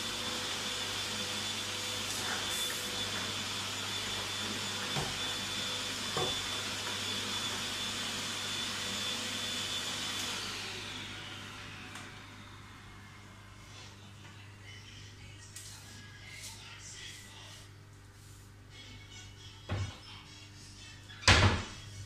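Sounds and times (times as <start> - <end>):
vacuum cleaner whining: 0.0 - 14.2.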